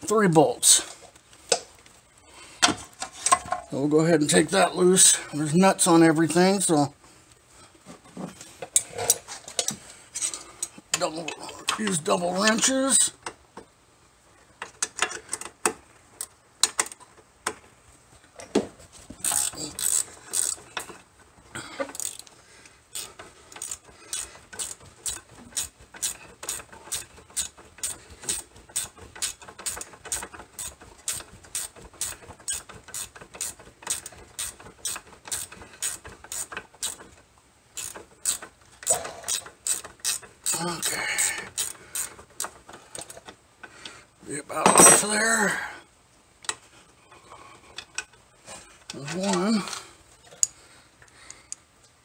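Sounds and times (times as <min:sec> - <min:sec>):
ratcheting wrench clicking: 0:19.2 - 0:21.0, 0:21.8 - 0:22.3, 0:22.9 - 0:43.2.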